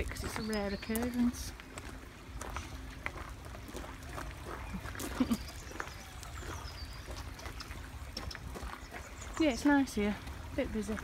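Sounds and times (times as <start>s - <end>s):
footsteps on gravel: 0.0s - 11.0s
stream trickling over rocks: 0.0s - 11.0s.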